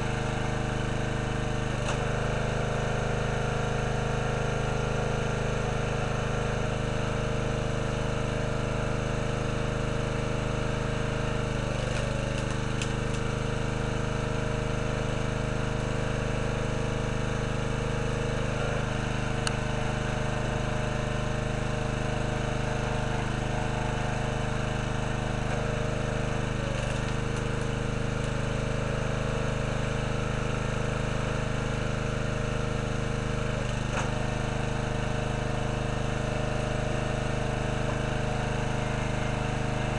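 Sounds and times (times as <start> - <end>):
small gasoline engine running: 0.0 - 39.9
wood cracking: 11.7 - 13.3, 26.4 - 28.4.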